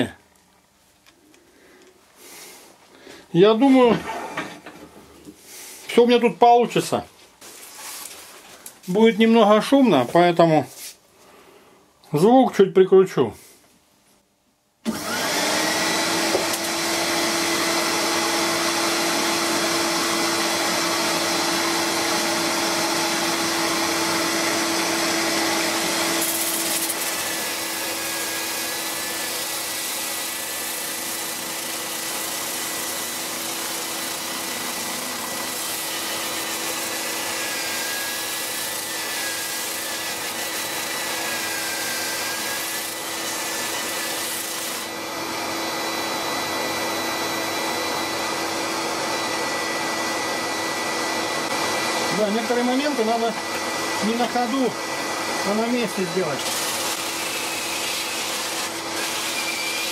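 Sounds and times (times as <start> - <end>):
drill sanding wood on lathe: 14.9 - 59.9.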